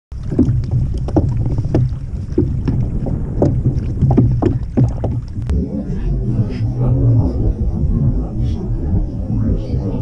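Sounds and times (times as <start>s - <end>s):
waves slapping against kayak hull: 0.1s - 5.5s
wind rumble on microphone: 0.1s - 10.0s.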